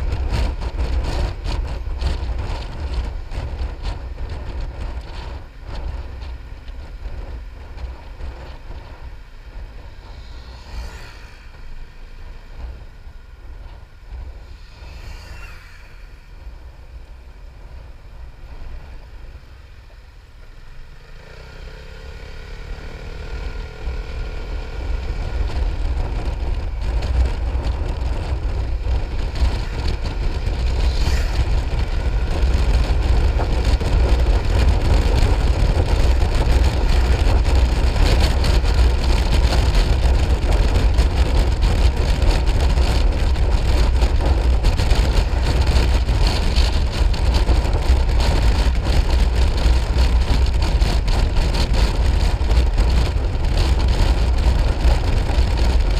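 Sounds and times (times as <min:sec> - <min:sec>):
wind rumble on microphone: 0:00.0 - 0:55.9.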